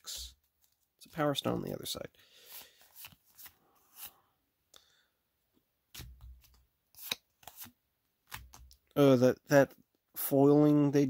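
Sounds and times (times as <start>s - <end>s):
trading cards rustling and flicking: 0.4s - 4.2s, 5.9s - 8.9s
cards sliding on cards: 2.4s - 4.2s, 5.9s - 8.7s.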